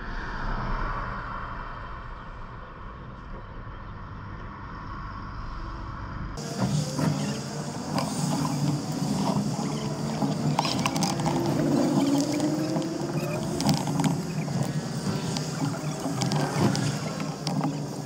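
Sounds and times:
road and wind noise: 0.0 - 18.0
vehicle engine running: 6.4 - 18.0.

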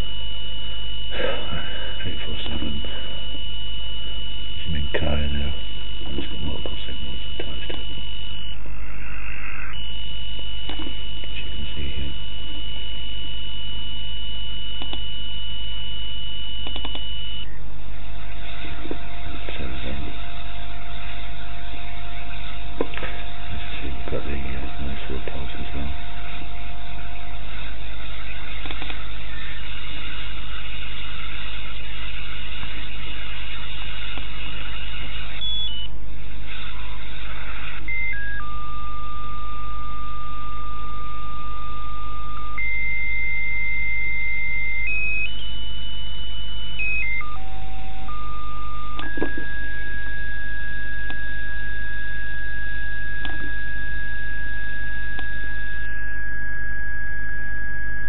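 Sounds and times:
low hum: 0.0 - 58.0
radio static hiss: 0.0 - 58.0
radio whistle tone: 0.0 - 58.0
click: 10.6 - 11.0, 14.8 - 15.1, 16.6 - 17.1, 28.6 - 29.0, 49.0 - 49.5, 51.0 - 51.3, 53.2 - 53.4, 55.1 - 55.4.

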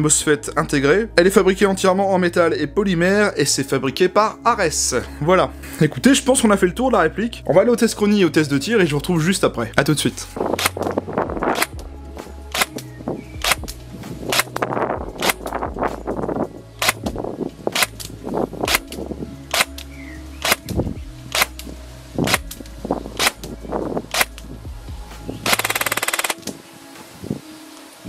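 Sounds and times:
airsoft gun automatic burst: 25.5 - 26.4
airsoft gun shots: 25.5 - 26.4.

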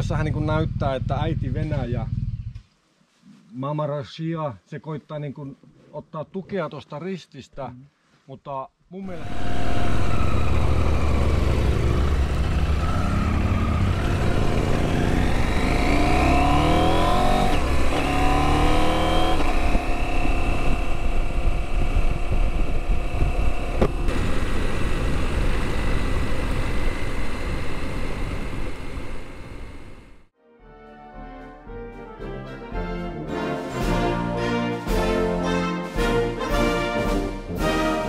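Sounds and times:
motorcycle accelerating: 0.0 - 2.6, 9.1 - 30.3
wind rumbling on microphone: 19.4 - 30.2.

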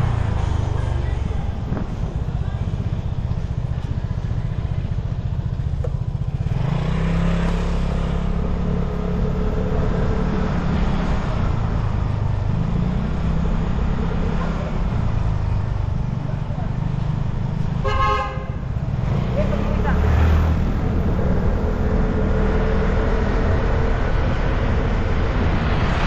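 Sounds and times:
scooter engine rumbling: 0.0 - 26.0.

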